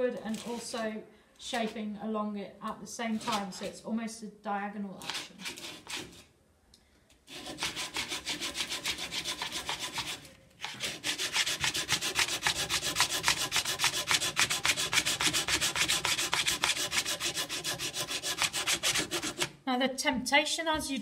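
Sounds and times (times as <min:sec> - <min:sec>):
sandpaper rubbing on wood: 0:07.3 - 0:19.5.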